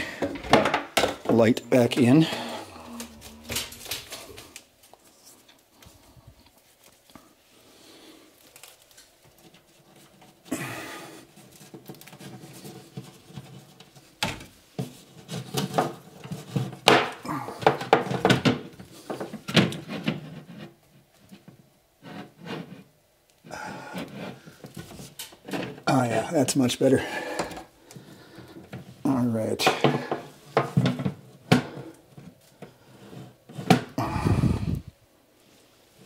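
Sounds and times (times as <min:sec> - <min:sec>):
scraping against wood: 0:11.3 - 0:22.9.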